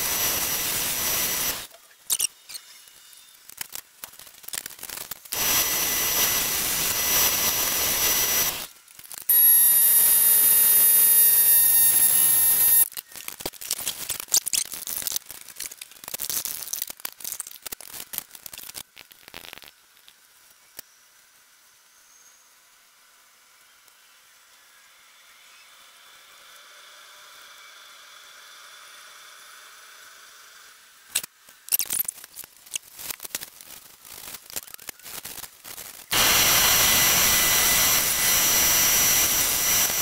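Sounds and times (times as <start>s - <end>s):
hissing bursts: 0.0s - 2.3s, 4.8s - 8.7s, 9.3s - 12.9s, 33.6s - 40.0s
high whistle: 9.3s - 12.9s.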